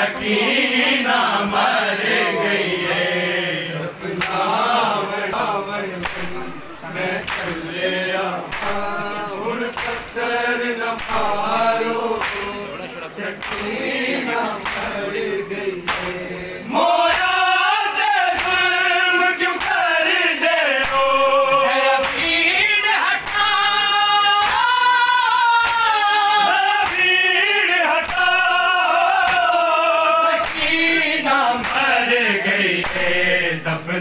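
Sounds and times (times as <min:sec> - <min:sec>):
rhythmic chest-beating strikes: 0:00.0 - 0:24.9, 0:25.5 - 0:34.0
men chanting a lament: 0:00.0 - 0:34.0.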